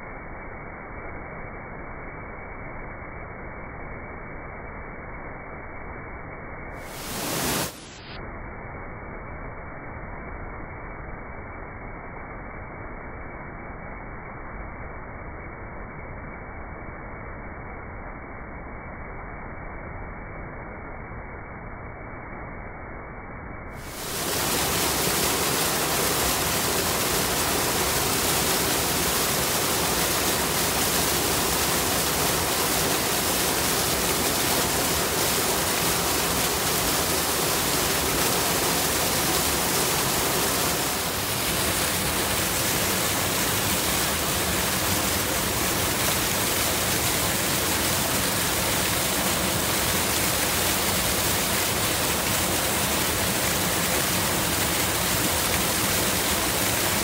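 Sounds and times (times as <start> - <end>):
rushing river water: 6.8 - 7.8, 23.8 - 57.0.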